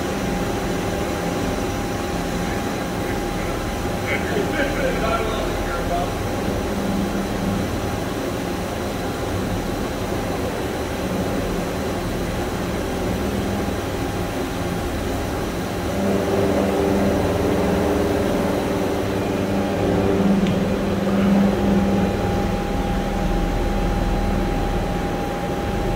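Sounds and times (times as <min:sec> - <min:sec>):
high-pitched machine whine: 0:00.0 - 0:25.9
machine mechanical hum: 0:00.0 - 0:25.9.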